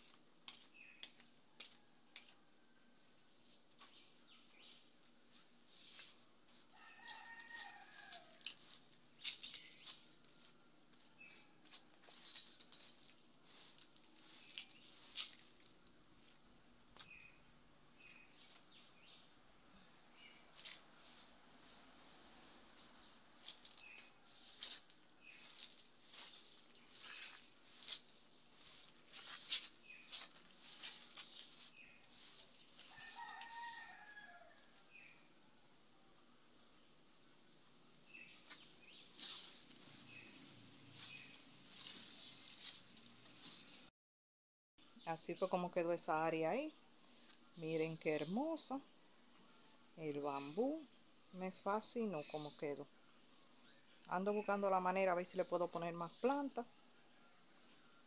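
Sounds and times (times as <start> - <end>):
broom sweeping tiled floor: 5.2 - 15.7, 20.5 - 33.7, 38.4 - 43.7
rooster crowing faintly: 6.6 - 8.7, 32.8 - 34.8.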